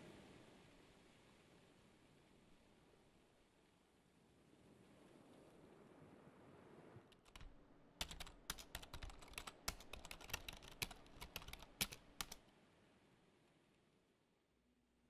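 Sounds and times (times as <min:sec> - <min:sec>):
laptop keyboard typing: 0:07.2 - 0:12.4.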